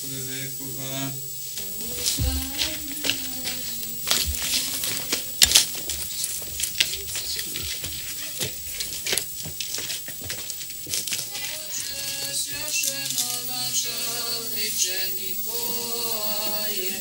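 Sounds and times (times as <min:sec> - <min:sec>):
knocks and rustling: 0:01.6 - 0:11.8
footsteps on pavement: 0:01.6 - 0:13.7.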